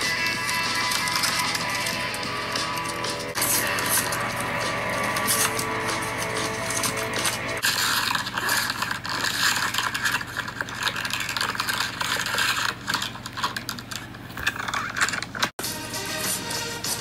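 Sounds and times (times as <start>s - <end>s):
plastic bags crinkling: 7.6s - 15.5s.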